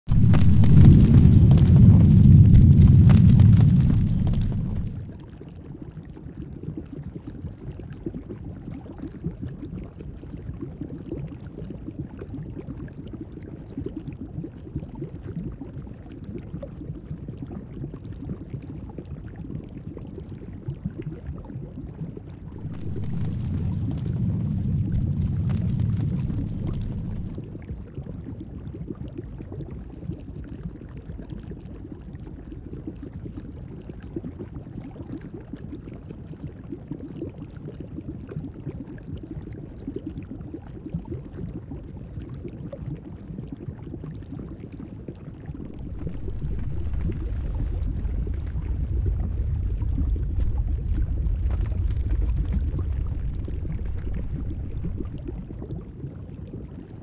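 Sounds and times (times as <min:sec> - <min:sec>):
low rumble: 0:00.0 - 0:05.3, 0:22.2 - 0:28.0, 0:45.4 - 0:57.0
bubbling lava: 0:00.0 - 0:57.0.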